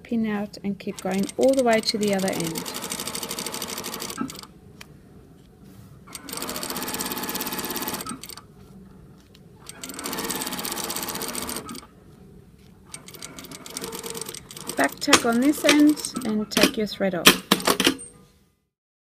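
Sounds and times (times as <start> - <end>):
sewing machine stitching: 1.0 - 4.5, 6.1 - 8.4, 9.6 - 11.9, 12.9 - 16.8.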